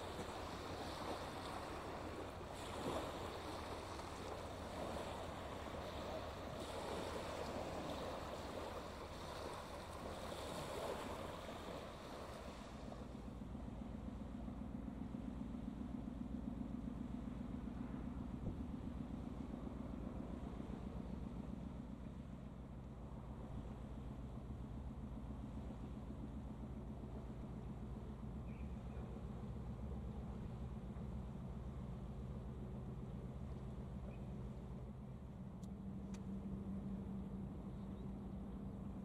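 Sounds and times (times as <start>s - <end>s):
waves lapping on shingle beach: 0.0s - 13.2s
low engine rumble: 0.0s - 39.0s.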